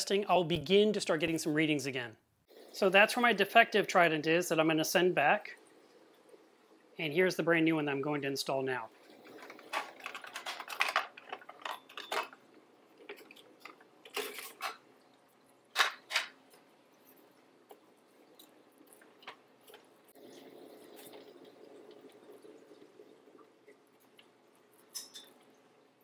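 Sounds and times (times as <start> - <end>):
faint steady hiss: 0.0 - 26.0
plastic equipment clicks and rustles: 9.2 - 12.4.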